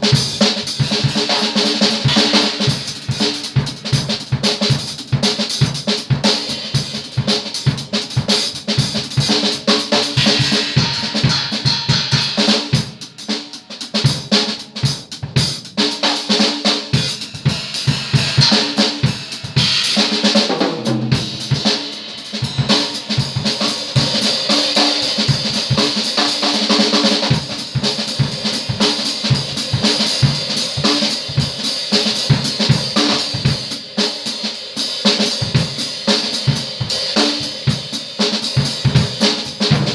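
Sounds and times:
bass drum: 0:00.8 - 0:13.0, 0:17.0 - 0:33.6
ringing cymbals: 0:21.3 - 0:25.6.

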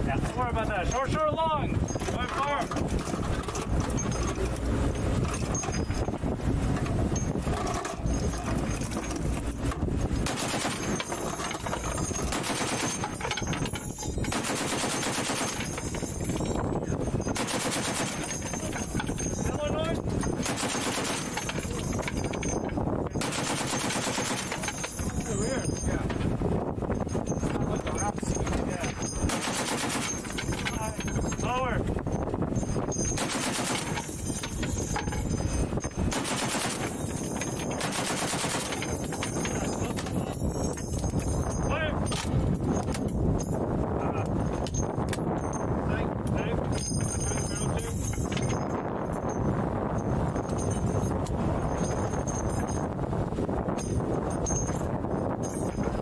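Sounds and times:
heavy machine gun firing bursts: 0:10.2 - 0:11.1, 0:12.2 - 0:13.1, 0:14.3 - 0:15.8, 0:17.4 - 0:18.4, 0:20.4 - 0:21.4, 0:23.2 - 0:24.7, 0:29.3 - 0:30.3, 0:33.2 - 0:34.0, 0:36.1 - 0:37.0, 0:37.8 - 0:38.8.

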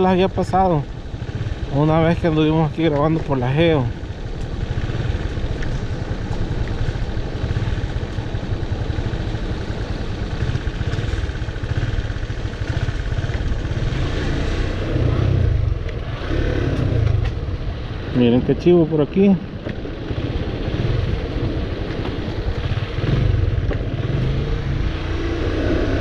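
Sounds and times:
motorcycle engine running: 0:00.0 - 0:26.0.

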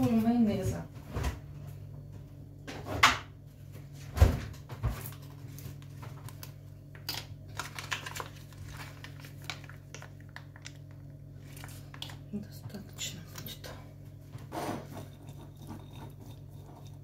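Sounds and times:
steady low hum: 0:00.0 - 0:17.0
plastic pouch crinkling: 0:05.8 - 0:12.2.

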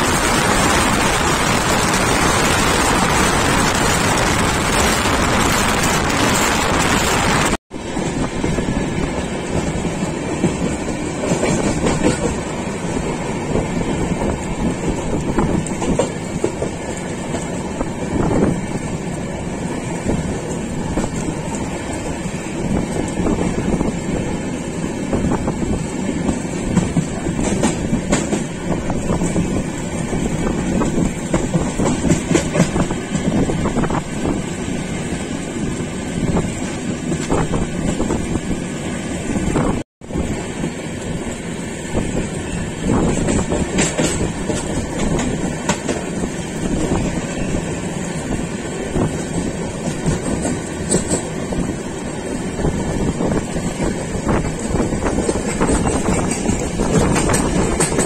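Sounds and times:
steady rushing noise: 0:00.0 - 0:38.3
train wheels rumbling on track: 0:00.0 - 0:58.0.

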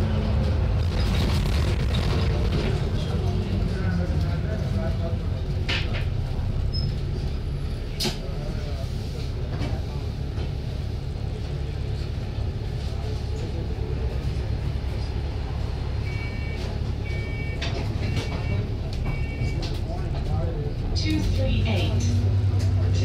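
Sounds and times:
bus engine low rumble: 0:00.0 - 0:23.0
door warning beeps: 0:16.0 - 0:19.6.

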